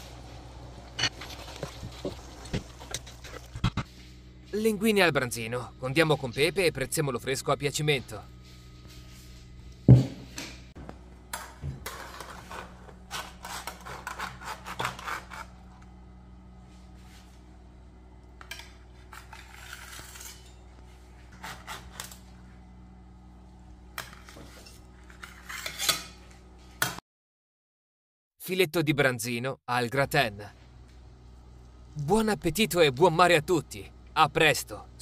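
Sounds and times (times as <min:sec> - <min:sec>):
utensil scraping on steel platter: 0:19.0 - 0:20.6.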